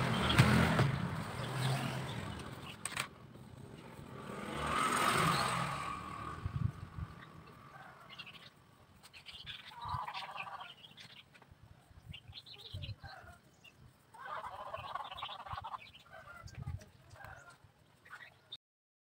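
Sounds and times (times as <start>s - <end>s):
fowl calling: 9.5s - 10.8s, 14.1s - 16.5s.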